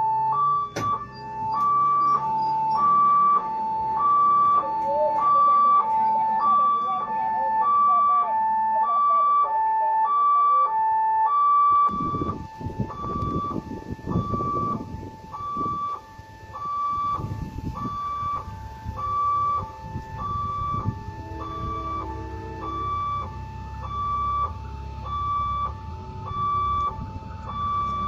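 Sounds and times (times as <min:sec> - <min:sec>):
two-tone crossing alarm: 0:00.0 - 0:28.0
uneven low rumbling: 0:11.9 - 0:28.0.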